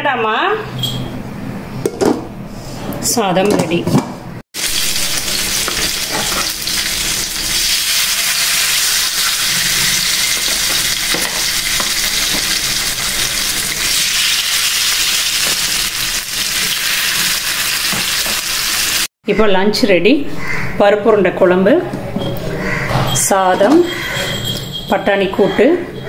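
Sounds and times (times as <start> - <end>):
fish sizzling in hot oil: 4.6 - 19.1.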